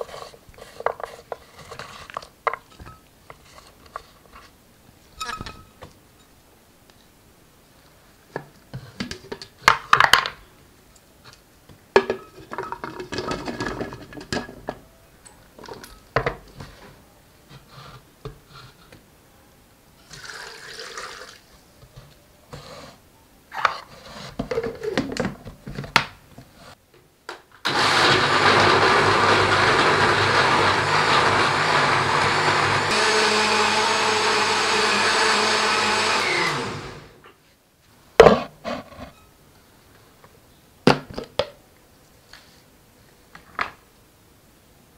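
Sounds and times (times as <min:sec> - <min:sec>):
water pouring: 0:20.1 - 0:21.5
blender motor whirring: 0:27.7 - 0:37.2.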